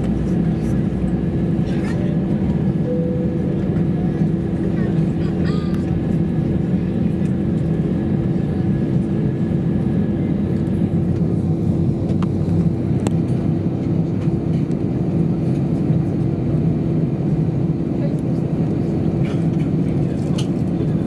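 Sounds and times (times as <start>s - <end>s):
droning hum: 0.0s - 14.8s
jet engine rumble in cabin: 0.0s - 21.0s.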